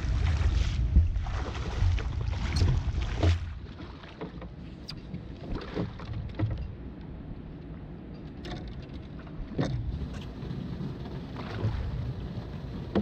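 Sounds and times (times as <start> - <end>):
wind rumble on microphone: 0.0 - 3.8, 4.6 - 13.0
water splashing and lapping: 0.0 - 13.0.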